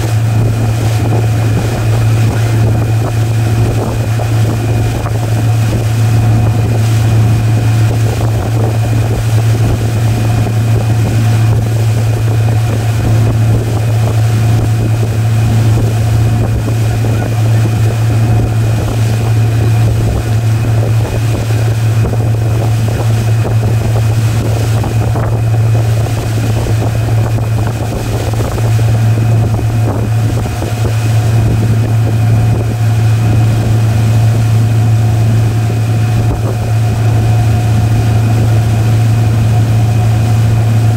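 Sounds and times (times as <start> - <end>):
motorboat engine humming: 0.0 - 40.9
water rushing in wake: 0.0 - 40.9
wind buffeting microphone: 0.0 - 40.9.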